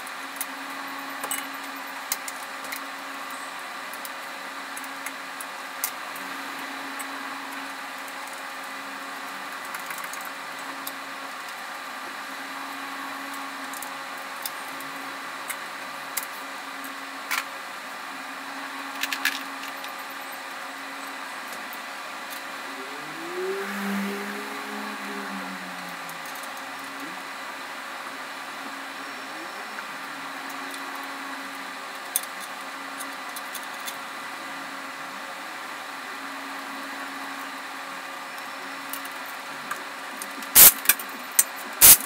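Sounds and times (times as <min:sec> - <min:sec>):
mechanical hum: 0:00.0 - 0:42.0
rising tone: 0:22.4 - 0:27.4.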